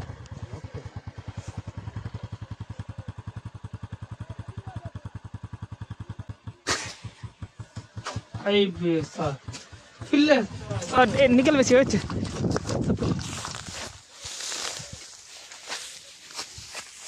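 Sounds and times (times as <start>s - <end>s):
small engine idling: 0.0s - 17.0s
sharp crack: 6.5s - 7.4s.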